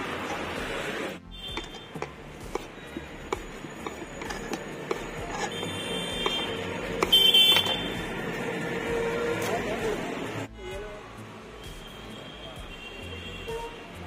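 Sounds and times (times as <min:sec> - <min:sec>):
knife chopping on wooden board: 0:01.5 - 0:07.8.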